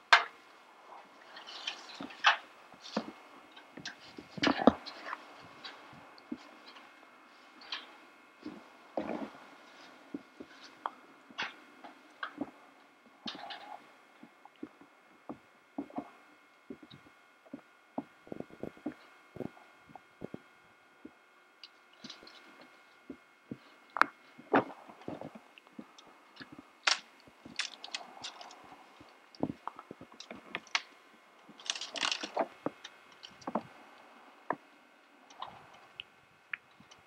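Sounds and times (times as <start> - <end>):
rustling of twigs and leaves: 0.0 - 12.6, 21.7 - 33.9
dry branches cracking and snapping: 24.0 - 28.6, 31.5 - 33.6.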